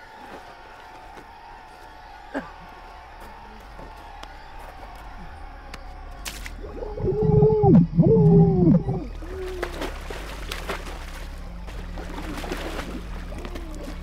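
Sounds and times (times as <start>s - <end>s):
water splashing and churning: 0.0s - 1.2s, 7.8s - 14.0s
muffled screams underwater: 3.8s - 14.0s.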